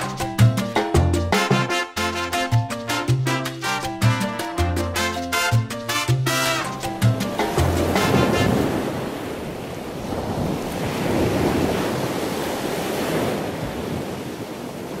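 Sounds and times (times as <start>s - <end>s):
ocean waves washing in: 6.5s - 15.0s.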